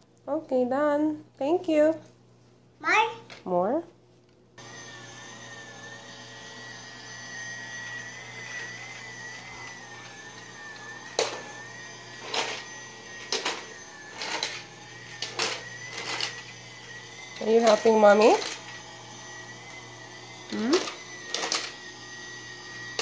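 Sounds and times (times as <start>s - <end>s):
toy vacuum cleaner whirring: 4.6s - 23.0s.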